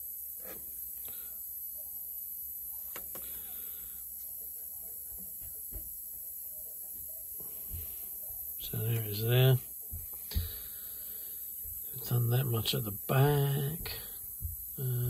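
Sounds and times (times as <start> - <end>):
room hum and hiss: 0.0 - 15.0.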